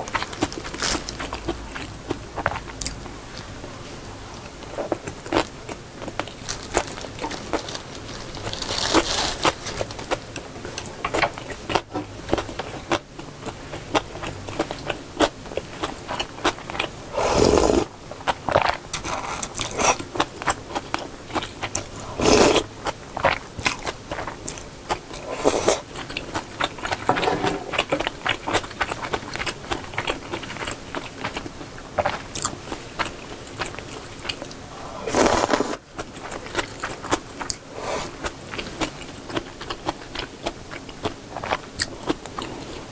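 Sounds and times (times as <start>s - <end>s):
wet chewing: 10.8s - 42.9s
slurping noodles: 17.1s - 17.9s, 22.0s - 22.7s, 25.1s - 25.9s, 34.7s - 35.8s.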